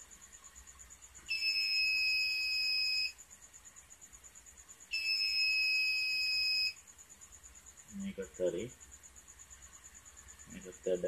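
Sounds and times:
high-pitched buzzer beeps: 1.2 - 3.2, 4.9 - 6.8.

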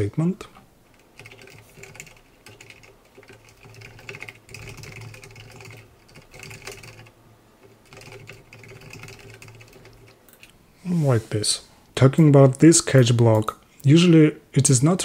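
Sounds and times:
typing on computer keyboard: 0.9 - 10.5.

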